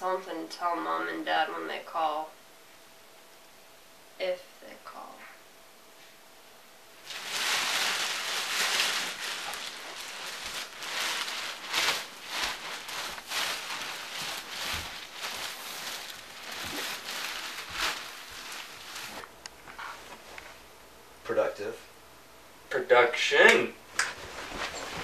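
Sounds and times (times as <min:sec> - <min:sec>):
crackly rustling handling noise: 0:07.0 - 0:20.7, 0:23.9 - 0:25.0.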